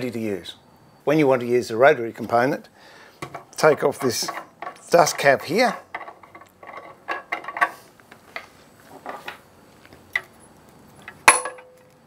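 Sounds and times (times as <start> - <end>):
sharp metallic clink: 11.3 - 11.9.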